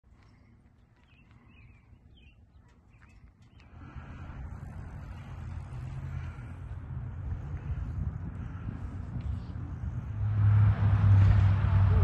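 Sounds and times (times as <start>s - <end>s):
small birds chirping: 0.1s - 4.2s
low rumbling noise: 3.7s - 12.0s.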